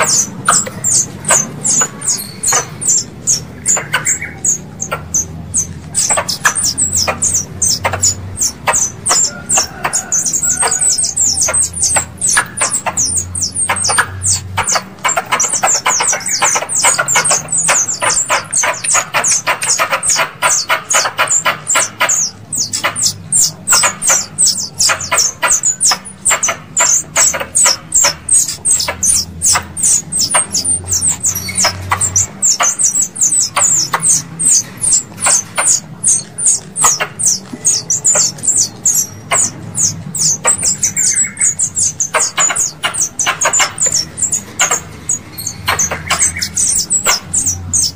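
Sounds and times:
squirrel chattering chirps: 0.0s - 47.9s.

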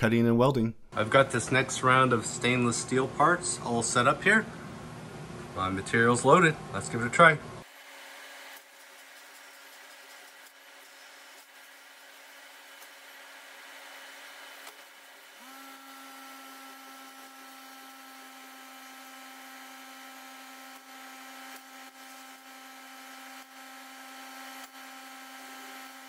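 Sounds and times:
high-pitched machine whine: 8.6s - 14.0s
laser cutting machine hum: 12.6s - 26.0s.

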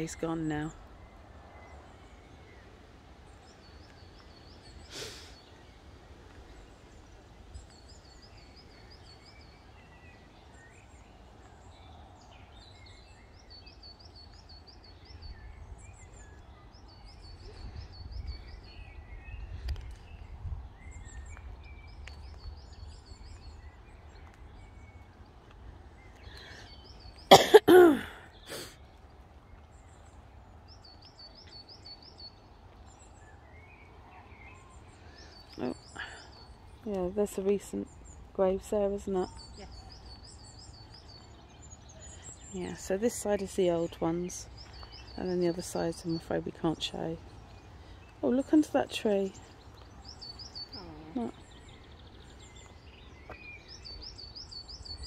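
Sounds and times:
person coughing: 27.3s - 28.6s
bird singing trilled phrase: 48.2s - 55.0s.

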